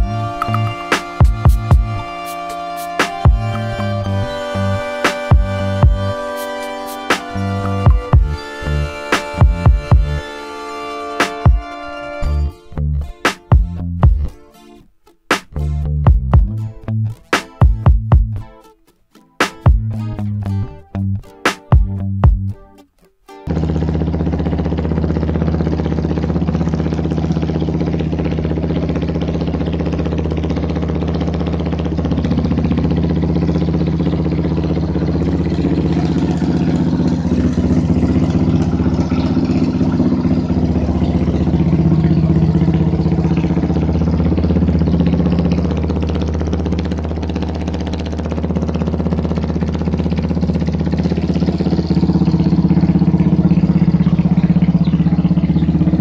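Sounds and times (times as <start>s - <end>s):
motorcycle engine idling: 0.0s - 2.1s, 3.2s - 6.2s, 7.2s - 10.2s, 23.5s - 56.0s.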